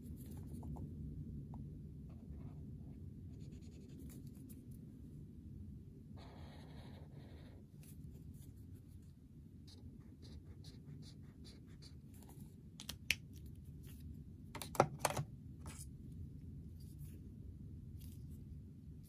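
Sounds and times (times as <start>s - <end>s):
highlighter scratching on paper: 6.2s - 12.5s.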